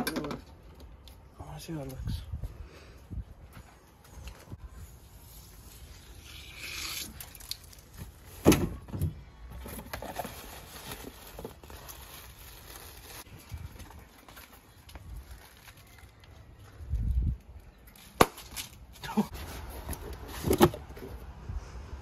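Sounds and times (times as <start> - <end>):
plastic wrapping rustling: 9.6 - 16.8.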